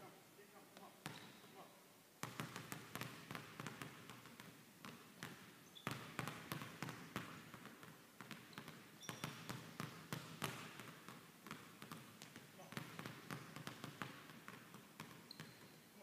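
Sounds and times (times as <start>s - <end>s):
basketballs bouncing on wooden floor: 0.8s - 1.6s, 2.2s - 15.8s
short high shoe squeaks: 1.1s - 1.4s, 8.5s - 9.3s, 15.3s - 15.8s.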